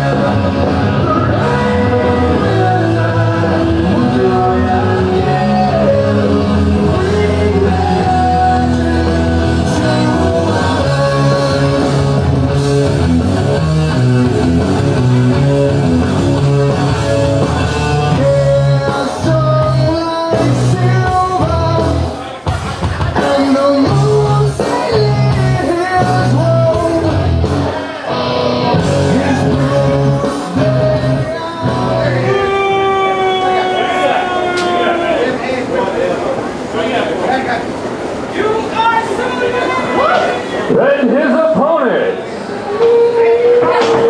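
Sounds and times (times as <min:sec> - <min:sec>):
rock song with singing and guitar: 0:00.0 - 0:34.8.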